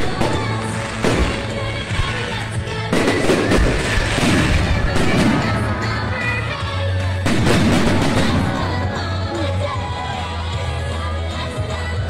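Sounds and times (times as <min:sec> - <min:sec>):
fireworks bangs: 0:00.0 - 0:06.6, 0:07.2 - 0:09.2.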